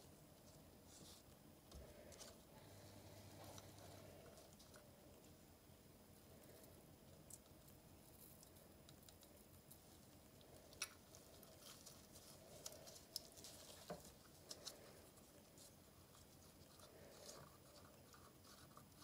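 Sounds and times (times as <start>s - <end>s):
foil flakes ticking and rustling: 8.1s - 19.0s.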